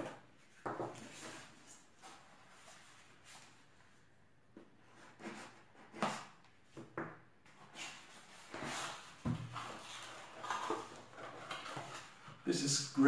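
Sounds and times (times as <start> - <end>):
plastic wrapping rustling: 8.2 - 12.4.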